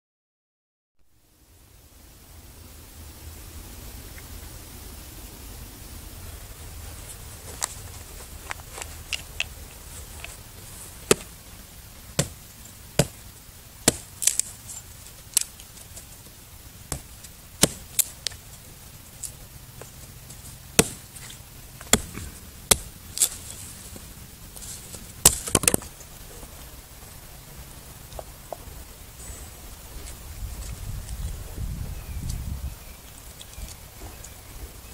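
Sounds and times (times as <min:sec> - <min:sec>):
hatchet chopping wood: 0:11.0 - 0:11.3, 0:12.2 - 0:12.4, 0:13.0 - 0:13.2, 0:13.8 - 0:14.5, 0:16.9 - 0:18.1, 0:20.8 - 0:21.1, 0:21.8 - 0:23.4, 0:25.2 - 0:25.8.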